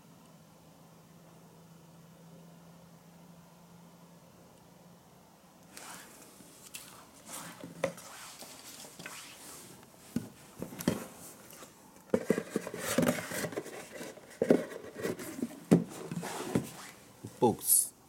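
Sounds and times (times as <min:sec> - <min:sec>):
cardboard box knocking and scraping: 0:12.1 - 0:16.8.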